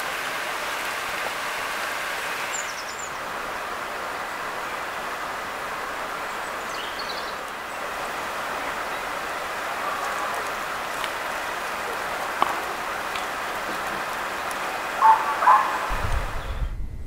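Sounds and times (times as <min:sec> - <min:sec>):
rushing forest ambience: 0:00.0 - 0:16.8
low rumble: 0:15.9 - 0:17.0.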